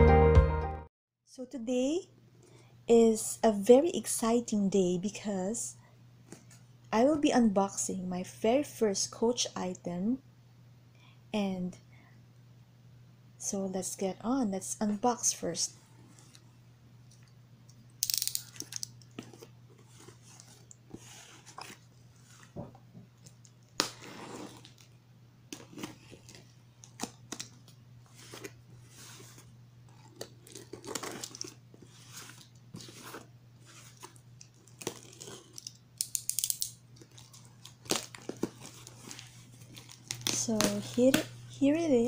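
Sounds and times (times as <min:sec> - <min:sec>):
blade slitting packing tape: 0:18.0 - 0:18.9, 0:34.7 - 0:37.2
cardboard handling: 0:28.1 - 0:35.6.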